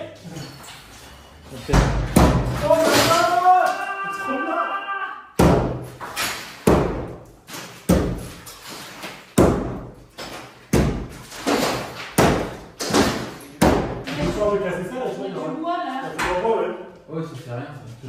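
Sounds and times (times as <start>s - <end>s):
hammer knocking plaster off wall: 1.8s - 3.4s, 5.4s - 7.2s, 7.8s - 8.4s, 9.4s - 14.4s.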